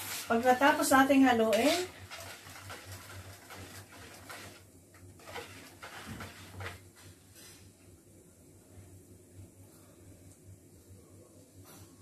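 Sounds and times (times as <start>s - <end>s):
utensil stirring in plastic bowl: 0.0s - 7.1s
light clicks and scrapes on bowl: 5.2s - 6.8s.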